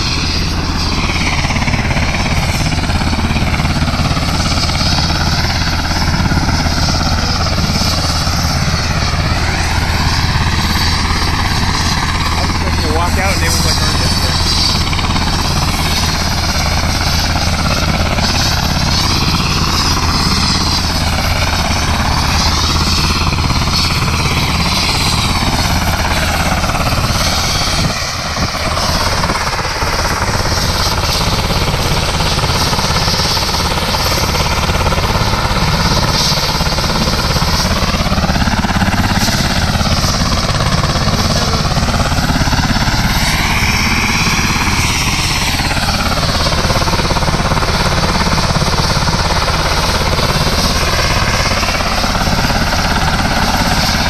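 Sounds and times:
helicopter running on the ground: 0.0 - 54.0.

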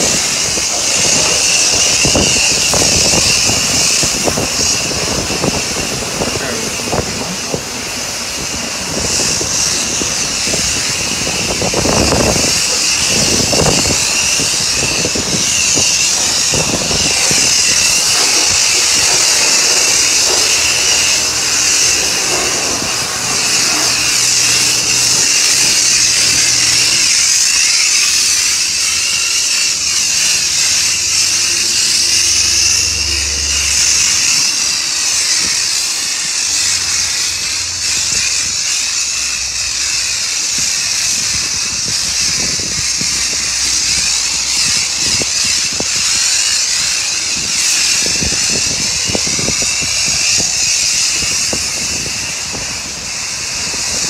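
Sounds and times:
pressure washer jet hissing: 0.0 - 54.0.

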